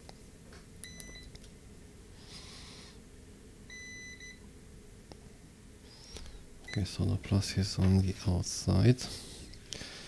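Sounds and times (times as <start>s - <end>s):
multimeter beeping: 0.8s - 1.3s, 3.7s - 4.4s.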